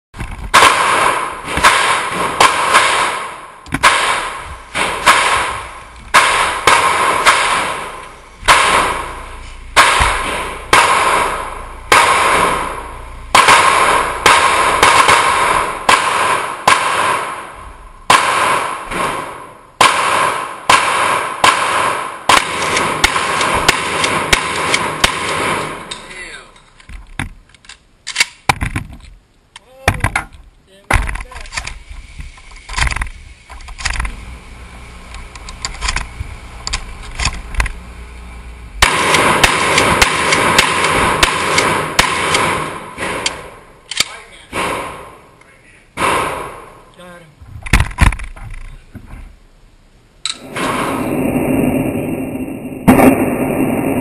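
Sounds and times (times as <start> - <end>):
gunshots echoing indoors: 0.5 - 26.6, 38.8 - 45.4, 46.0 - 46.8, 50.4 - 54.0.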